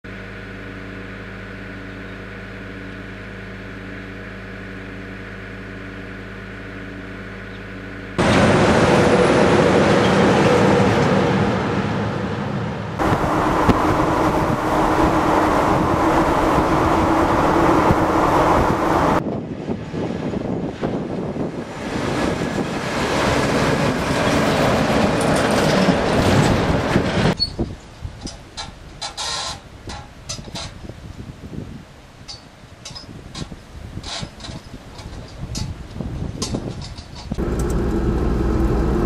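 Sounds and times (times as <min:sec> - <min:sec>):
trucks passing at speed: 0:08.2 - 0:19.2, 0:21.6 - 0:27.4, 0:37.4 - 0:39.0
diesel engine idling: 0:13.0 - 0:19.2, 0:37.4 - 0:39.0.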